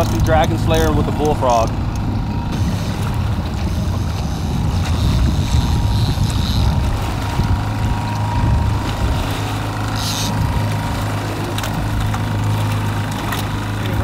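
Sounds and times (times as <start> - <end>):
outboard motor humming: 0.0 - 14.0.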